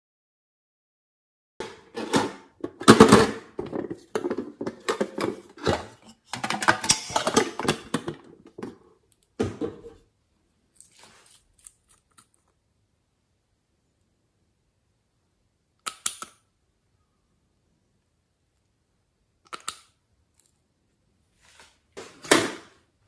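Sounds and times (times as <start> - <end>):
plastic containers clicking and rattling: 1.6 - 8.8
plastic toys clattering: 1.6 - 8.8.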